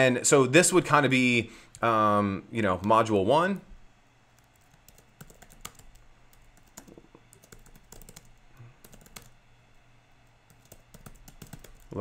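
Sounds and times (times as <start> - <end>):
faint keyboard typing: 2.8 - 9.4, 10.2 - 12.0.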